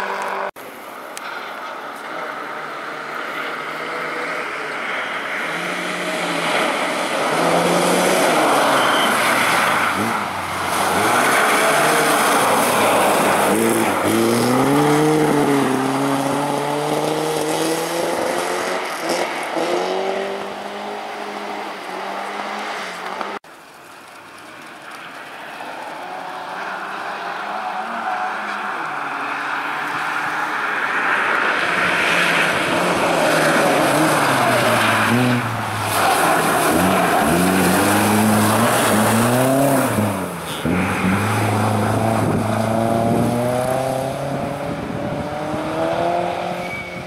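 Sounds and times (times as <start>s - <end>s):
rally car engine at full throttle: 0.0s - 0.6s, 1.2s - 23.4s, 24.6s - 47.0s
tyres hissing on icy gravel: 0.6s - 16.2s, 23.5s - 28.8s, 30.0s - 42.0s.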